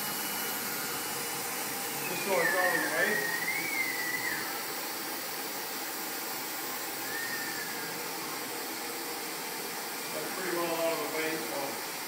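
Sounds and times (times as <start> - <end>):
cnc router running: 0.0 - 12.0
faint short whine: 7.0 - 8.0.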